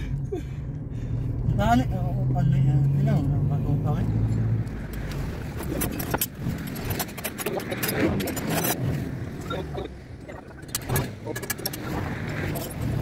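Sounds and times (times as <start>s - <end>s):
metal tools clinking and rattling: 5.6s - 9.6s, 10.6s - 13.0s.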